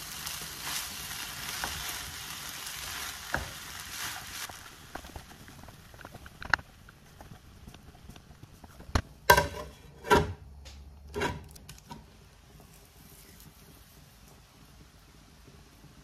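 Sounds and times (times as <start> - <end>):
metal clanks on a wok: 9.2 - 12.1.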